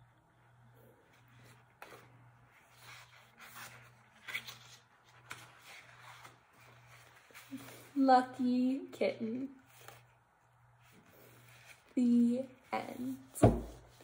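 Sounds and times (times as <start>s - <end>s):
paper rustling: 1.2s - 8.0s.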